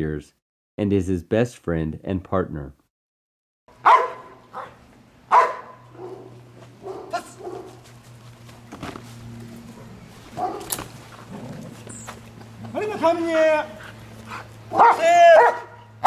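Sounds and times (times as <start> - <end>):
dog barking: 3.8 - 7.8, 9.8 - 10.9, 14.3 - 16.0.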